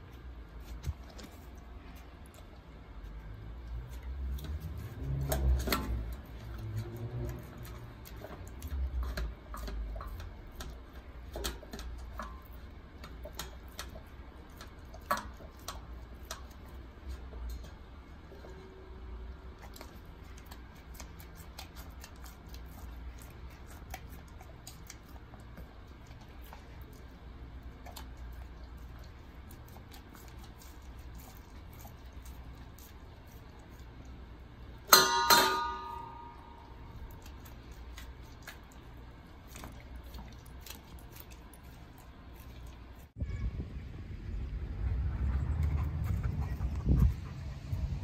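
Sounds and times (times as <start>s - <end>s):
dog chewing meat and bone: 0.0s - 43.2s
metal bowl knocked and ringing: 34.9s - 36.6s.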